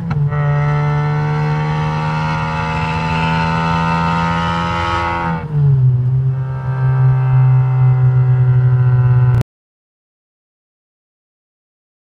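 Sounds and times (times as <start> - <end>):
car exhaust droning: 0.0 - 9.4.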